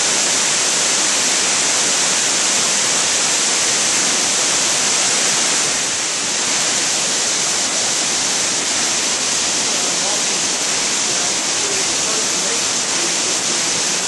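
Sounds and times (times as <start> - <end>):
waterfall rushing: 0.0 - 14.0.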